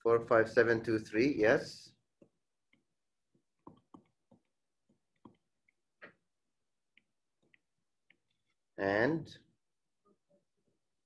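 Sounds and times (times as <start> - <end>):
stylus tapping on touchscreen: 2.2 - 6.3, 6.9 - 8.3.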